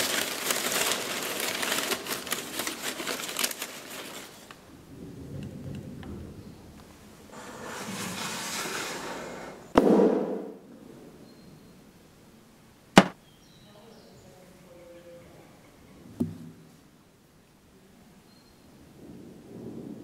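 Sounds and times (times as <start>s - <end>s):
sharp crack: 9.7s - 10.6s, 13.0s - 13.2s
heavy thud: 13.0s - 13.2s.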